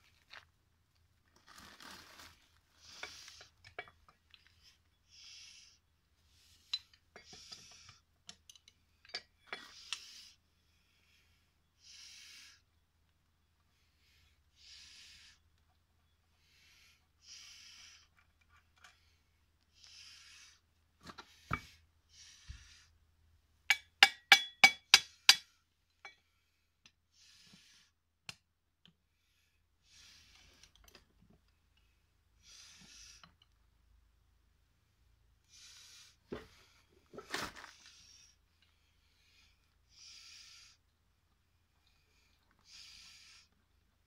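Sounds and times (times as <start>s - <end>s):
breath hissing in puffs: 11.8s - 12.6s, 14.6s - 15.4s, 16.4s - 18.1s, 39.2s - 40.8s, 42.7s - 43.5s.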